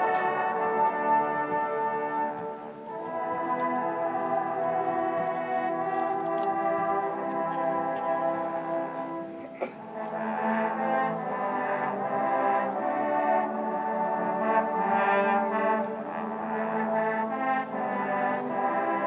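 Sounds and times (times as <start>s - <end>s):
brass band playing sustained chords: 0.0s - 19.0s.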